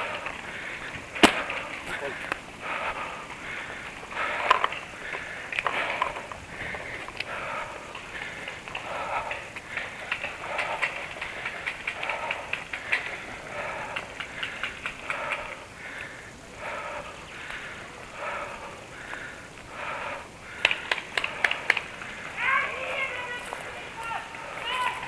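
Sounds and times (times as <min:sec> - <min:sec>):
person breathing: 0:00.0 - 0:25.0
twigs snapping: 0:20.5 - 0:21.9
footsteps crunching on twigs: 0:20.5 - 0:25.0.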